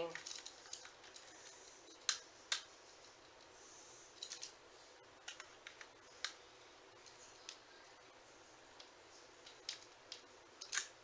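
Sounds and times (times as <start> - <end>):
small plastic parts clicking: 0.1 - 3.5, 4.2 - 4.6, 8.8 - 11.0.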